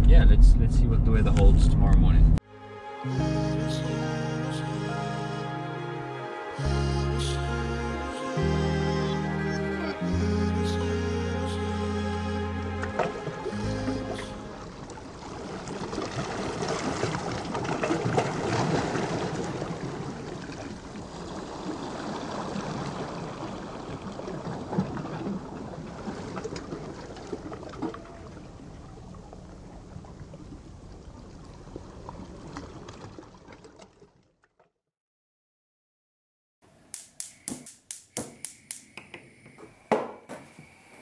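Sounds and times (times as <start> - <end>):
small waves washing up beach: 14.4 - 27.6
water lapping against rocks: 14.6 - 34.4.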